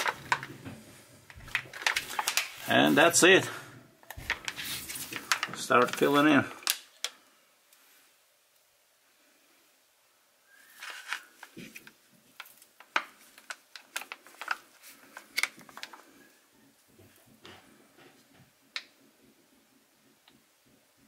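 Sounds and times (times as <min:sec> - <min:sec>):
plastic pouch crinkling: 0:00.0 - 0:00.6, 0:01.3 - 0:07.2, 0:10.6 - 0:16.3.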